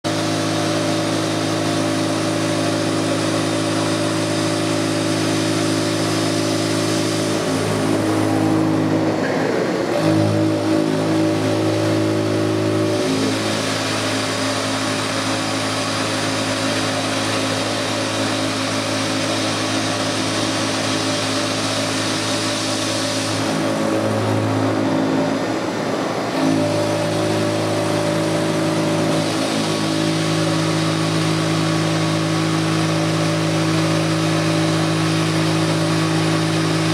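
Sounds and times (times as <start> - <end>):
milling machine humming: 0.1 - 36.9.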